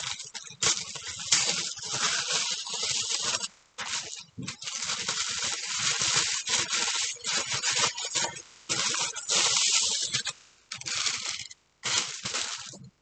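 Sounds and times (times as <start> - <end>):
tissue paper rustling: 11.9 - 12.8.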